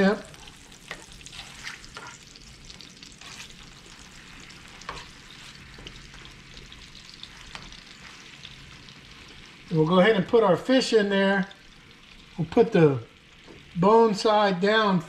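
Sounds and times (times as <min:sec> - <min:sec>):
sauce sizzling in a frying pan: 0:00.0 - 0:15.0
spatula clicking and scraping pan: 0:00.3 - 0:08.6.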